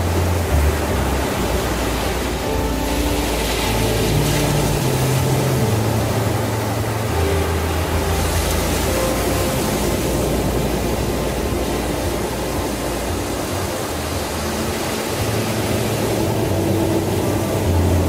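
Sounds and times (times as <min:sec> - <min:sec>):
low droning tone: 0:00.0 - 0:18.0
surf washing on sandy beach: 0:00.0 - 0:18.0.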